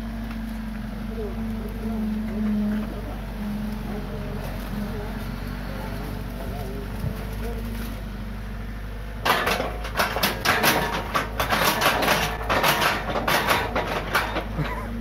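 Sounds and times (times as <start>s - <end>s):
excavator engine running: 0.0s - 15.0s
metallic clattering and scraping: 9.2s - 15.0s.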